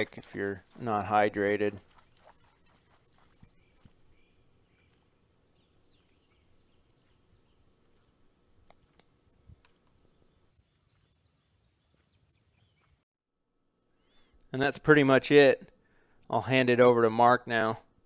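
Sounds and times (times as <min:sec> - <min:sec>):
insect chorus trilling: 0:00.0 - 0:13.0.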